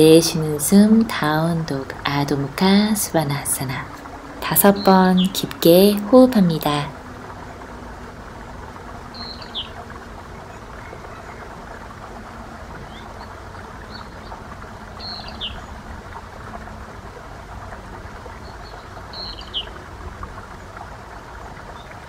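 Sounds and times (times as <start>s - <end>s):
running water: 0.0s - 22.0s
bird chirping: 9.1s - 9.8s.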